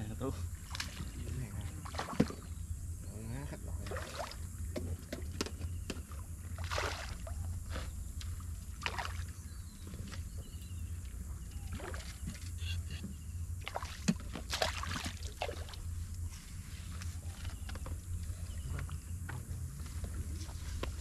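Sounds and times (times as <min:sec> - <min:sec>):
steady low rumble: 0:00.0 - 0:06.6, 0:07.2 - 0:21.0
fish splashing at water surface: 0:06.6 - 0:07.9, 0:08.7 - 0:09.4, 0:13.6 - 0:15.9.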